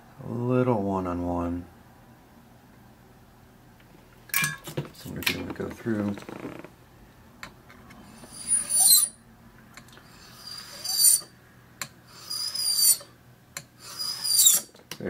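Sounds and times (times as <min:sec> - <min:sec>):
file scraping across key blank: 0:13.8 - 0:14.7.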